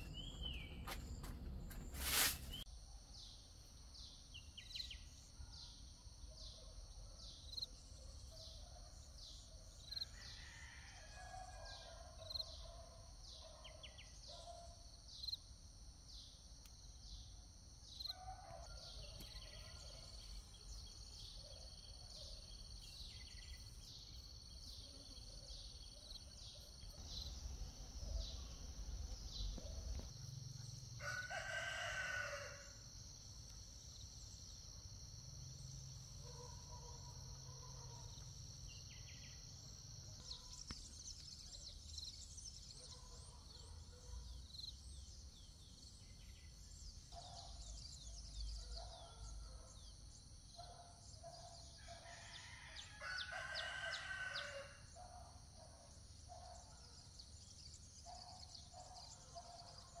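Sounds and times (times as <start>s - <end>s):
rooster crowing: 10.2s - 12.0s, 31.0s - 32.8s, 51.8s - 54.8s.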